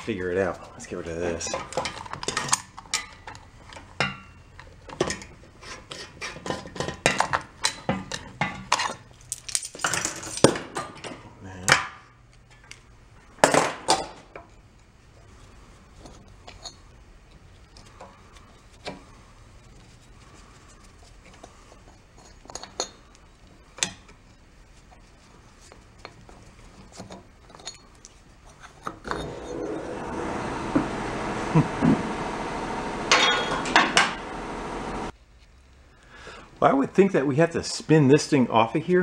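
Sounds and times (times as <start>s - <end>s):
metal tools and parts clanking: 28.6s - 29.8s, 33.1s - 34.2s.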